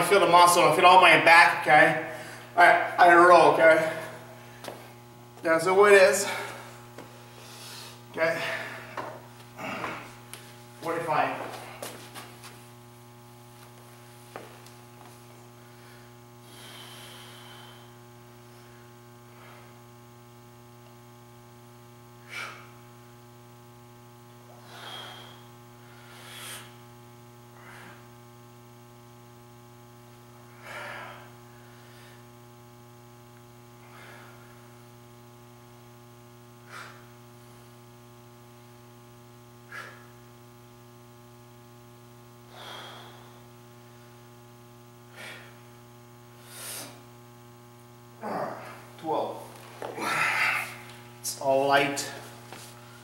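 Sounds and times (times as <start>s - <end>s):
electrical mains hum: 0.0s - 53.0s
man breathing forcefully: 15.6s - 18.0s, 24.5s - 26.8s, 36.6s - 37.1s, 42.5s - 43.5s, 45.1s - 45.7s, 46.4s - 47.1s.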